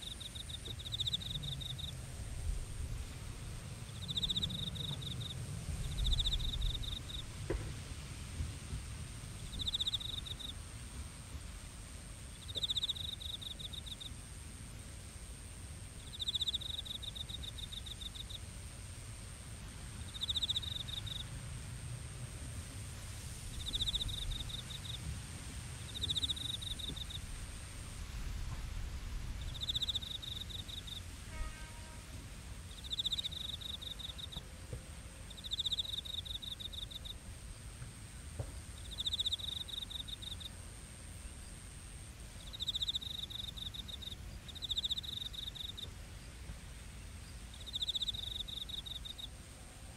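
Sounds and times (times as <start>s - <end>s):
high-pitched insect trill: 0.0s - 2.0s, 3.8s - 7.3s, 9.4s - 10.6s, 12.4s - 14.2s, 16.0s - 18.4s, 19.9s - 21.3s, 23.5s - 25.1s, 25.8s - 27.9s, 29.3s - 32.1s, 32.7s - 34.4s, 35.3s - 37.2s, 38.7s - 40.6s, 41.2s - 45.9s, 47.2s - 49.4s
crickets chirping: 0.0s - 49.9s.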